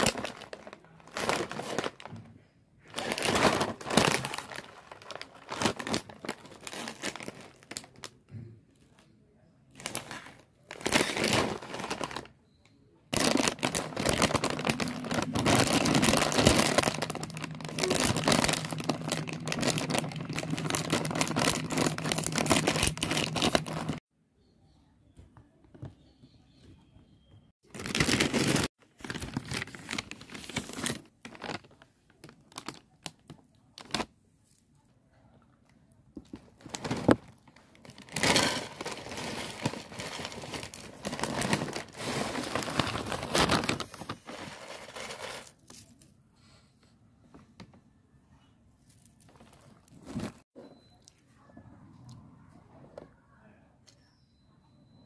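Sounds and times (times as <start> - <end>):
plastic snack bag crinkling: 0.0 - 2.2, 2.8 - 8.2, 9.7 - 12.3, 13.1 - 24.0, 27.6 - 34.1, 36.2 - 46.0, 48.9 - 50.4.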